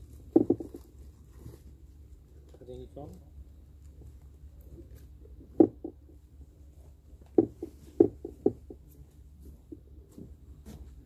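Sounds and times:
steady low hum: 0.0 - 11.0
short dull knocks: 0.3 - 0.9, 5.4 - 6.2, 7.2 - 8.8.

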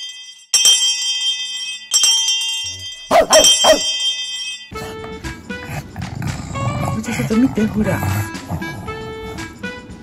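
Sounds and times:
dog barks: 3.1 - 4.0.

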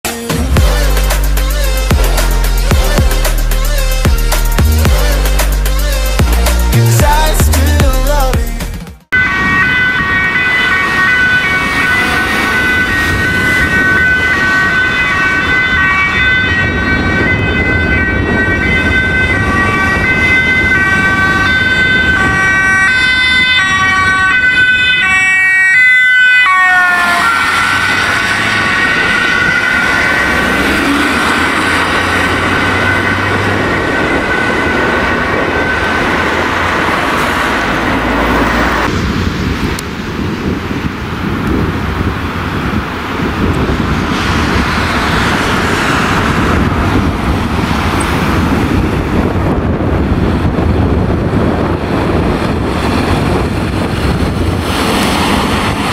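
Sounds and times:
road and engine noise: 0.0 - 55.9
two-tone ambulance siren: 9.1 - 39.3.

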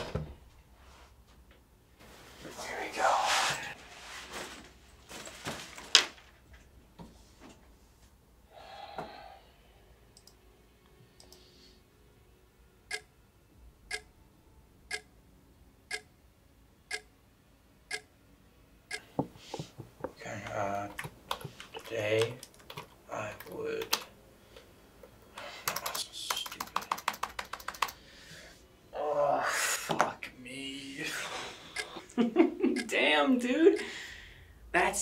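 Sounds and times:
clock ticking: 12.9 - 13.1, 13.9 - 14.1, 14.9 - 15.1, 15.9 - 16.1, 16.9 - 17.1, 17.9 - 18.1, 18.9 - 19.2, 31.8 - 33.0, 33.7 - 33.9
soft knocks and rustles: 19.1 - 20.2.

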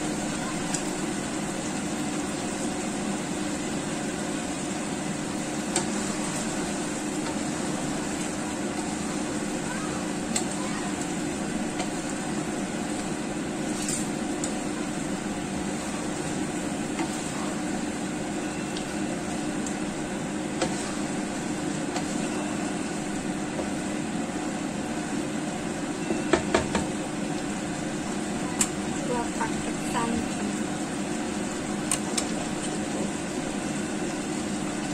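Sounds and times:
steady hum: 0.0 - 34.9
spatula stirring food in a pan: 0.1 - 24.6.

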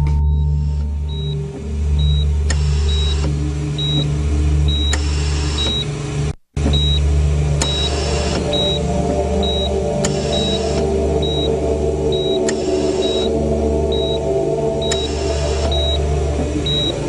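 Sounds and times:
patient monitor beeping: 0.0 - 4.1, 4.7 - 5.9, 6.7 - 17.0
steady low hum: 0.0 - 17.0
whooshing swell: 7.1 - 17.0.

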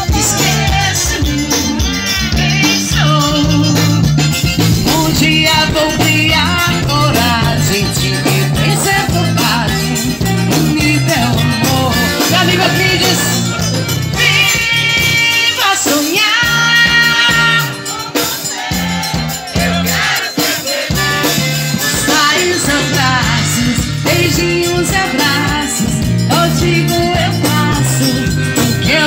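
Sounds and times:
bass line: 0.0 - 15.6, 22.1 - 29.0
drum kit dance beat: 0.0 - 29.0
accordion melody: 0.6 - 15.9, 20.0 - 29.0.

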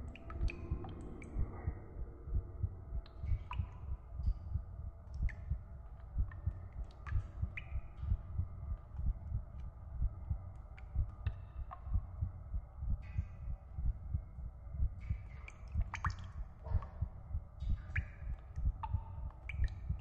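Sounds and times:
water drips plinking: 0.0 - 12.4, 13.0 - 20.0
slow heartbeat: 0.0 - 20.0.

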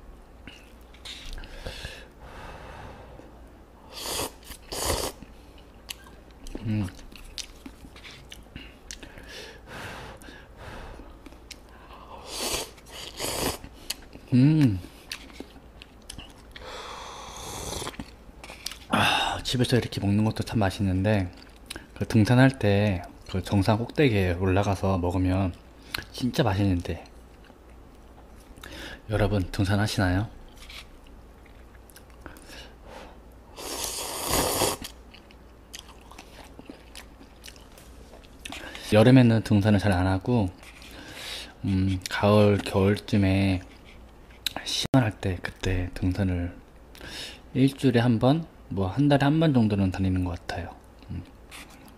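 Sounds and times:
soft chewing: 0.4 - 1.6, 4.4 - 9.3, 11.0 - 12.0, 12.7 - 16.7, 17.7 - 18.9, 21.2 - 22.0, 26.8 - 28.8, 30.4 - 32.7, 34.8 - 38.9, 40.4 - 44.8, 50.8 - 51.9
person slurping noodles: 3.9 - 5.2, 12.2 - 13.7, 17.2 - 18.0, 33.6 - 34.9.

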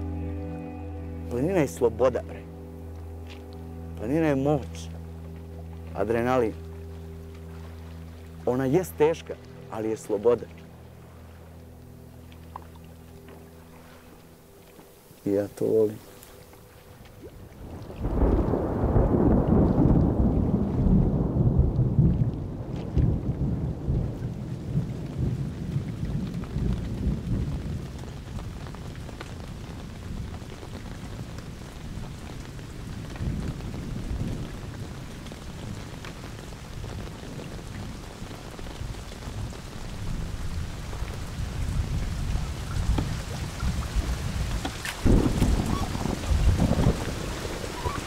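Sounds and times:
low rumble: 0.0 - 14.4, 17.2 - 29.0
rain falling on lake: 0.0 - 48.0.

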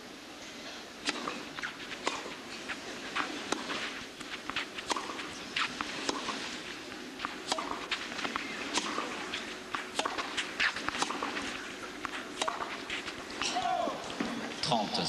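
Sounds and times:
tennis ball knocks: 4.4 - 6.4, 7.2 - 14.4.

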